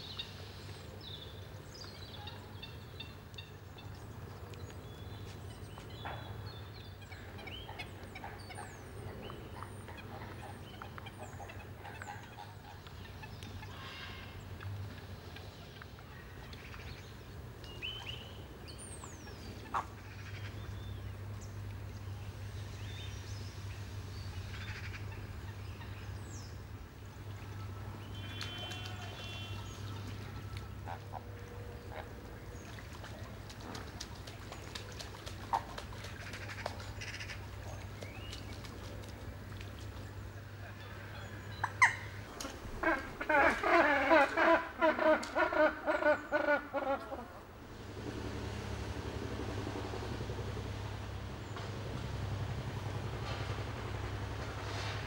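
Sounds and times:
steady low hum: 0.0s - 55.0s
birds chirping and squawking: 40.8s - 47.5s.

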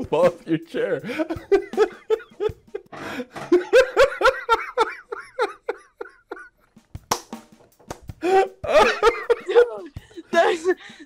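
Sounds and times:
man and woman laughing: 1.0s - 6.8s, 8.2s - 11.0s.

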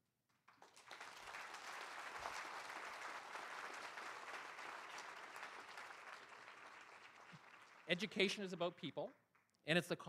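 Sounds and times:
audience applauding: 0.5s - 8.5s.

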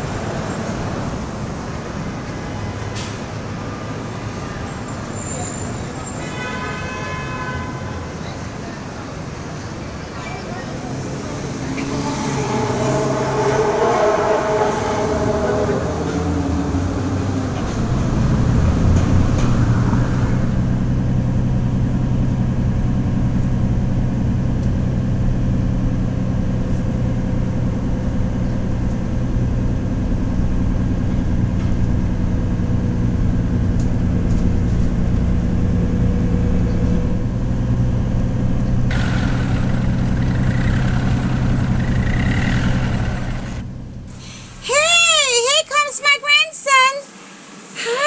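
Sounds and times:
vehicle engine drone: 8.5s - 44.8s.

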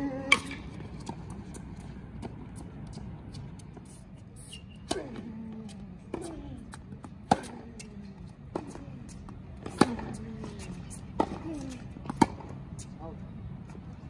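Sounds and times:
tennis ball bouncing: 0.1s - 3.9s, 4.8s - 12.6s
tennis ball struck by rackets: 0.2s - 1.3s, 7.2s - 7.9s, 9.6s - 12.5s.

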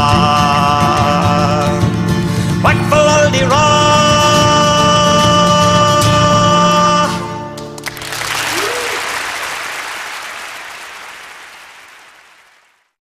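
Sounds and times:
audience applauding: 7.8s - 13.0s.

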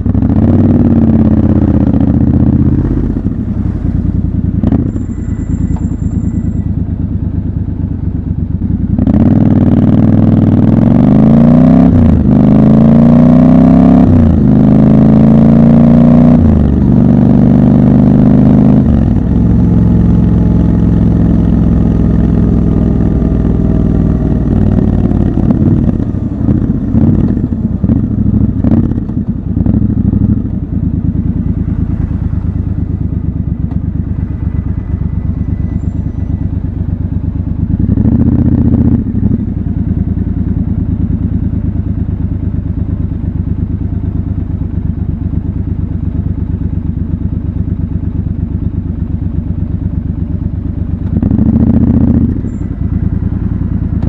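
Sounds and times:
motorcycle engine idling: 0.0s - 10.7s, 18.5s - 54.0s
motorcycle engine slowing down: 16.2s - 54.0s.

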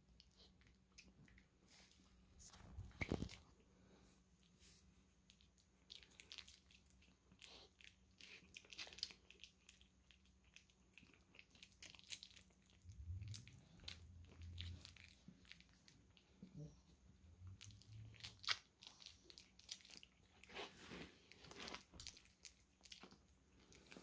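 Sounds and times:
faint low rumble: 9.4s - 24.0s.

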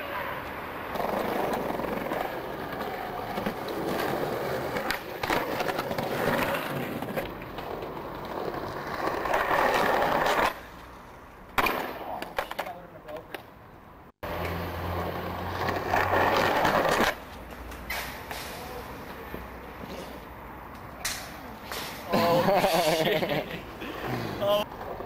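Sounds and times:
skateboard wheels rolling on concrete: 0.0s - 25.0s
sharp clack: 21.0s - 22.1s.

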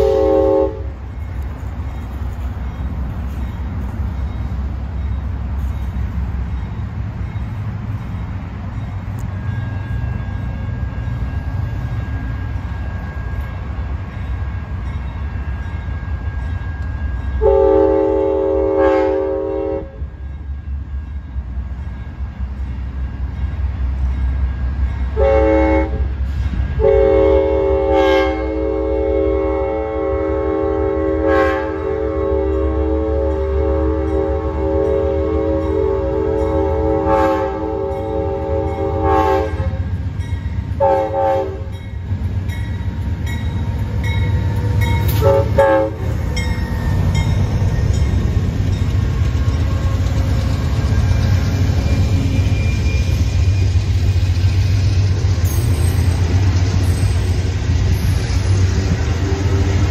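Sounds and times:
train air horn blasts: 0.0s - 1.0s, 17.4s - 20.1s, 25.2s - 39.9s, 40.8s - 41.8s, 44.7s - 46.5s, 58.8s - 59.9s.

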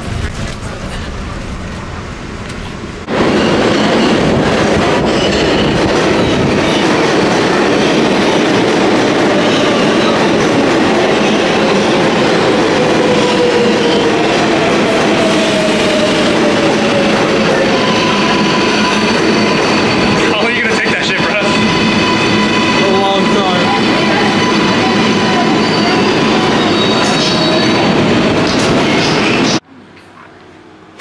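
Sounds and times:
steel train wheels clattering on rail: 0.0s - 20.4s.

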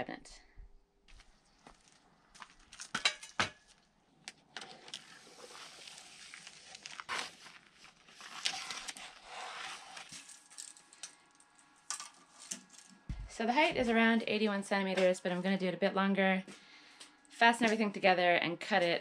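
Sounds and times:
plastic wrap crinkling and tearing: 4.6s - 11.5s.

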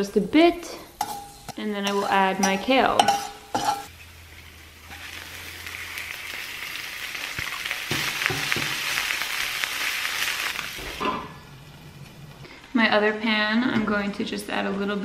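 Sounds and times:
kale sizzling in a frying pan: 0.0s - 11.8s
metal spatula knocking a pan: 7.9s - 8.8s.

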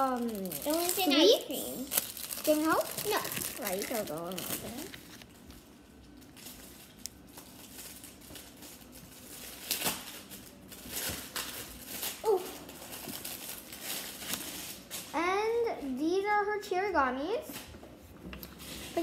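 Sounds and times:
packaging wrapper crinkling: 0.0s - 15.2s.

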